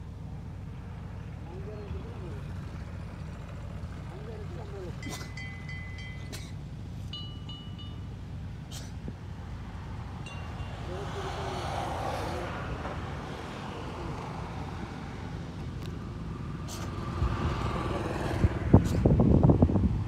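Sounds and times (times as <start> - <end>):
wind buffeting microphone: 17.0 - 20.0.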